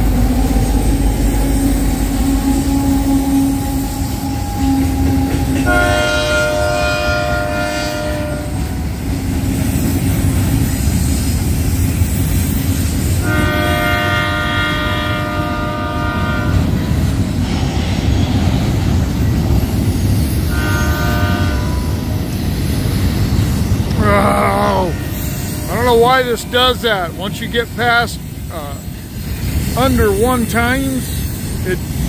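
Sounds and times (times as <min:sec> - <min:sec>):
train horn blast: 0:00.0 - 0:09.1, 0:13.2 - 0:17.6, 0:20.4 - 0:22.4, 0:24.6 - 0:26.9
train wheels rumbling on rail: 0:00.0 - 0:32.0.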